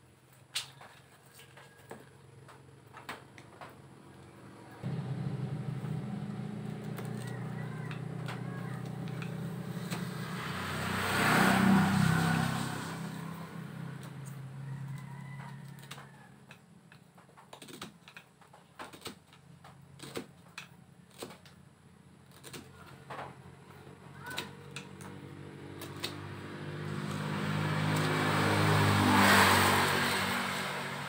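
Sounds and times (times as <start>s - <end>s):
passing vehicle engine hum: 3.6s - 16.4s, 22.7s - 31.0s.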